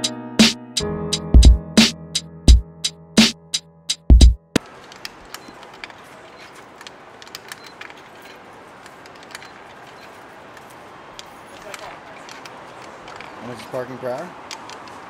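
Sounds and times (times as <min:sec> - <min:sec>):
traffic and street noise: 0:04.6 - 0:15.0.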